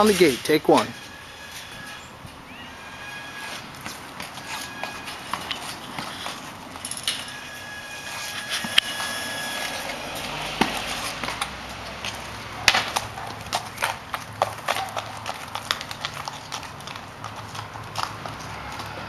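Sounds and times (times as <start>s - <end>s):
horse hooves on concrete: 0.0s - 19.0s.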